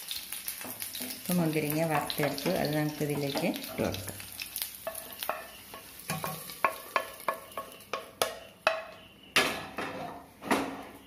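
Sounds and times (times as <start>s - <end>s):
wooden spatula knocking metal pan: 4.9s - 10.8s.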